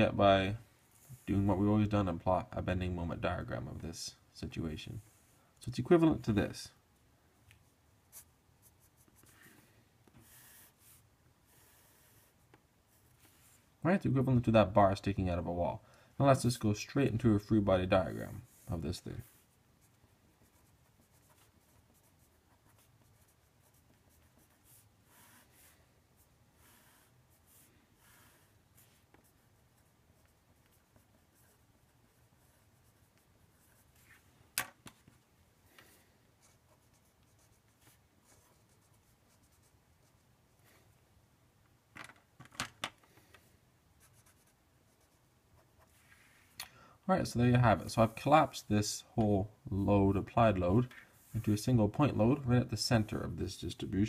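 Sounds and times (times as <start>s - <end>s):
marker pen writing on paper: 19.2s - 25.8s.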